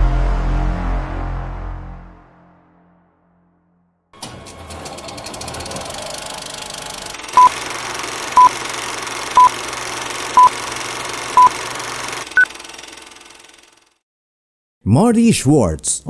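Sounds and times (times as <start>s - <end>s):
film projector hiss: 5.8s - 14.0s.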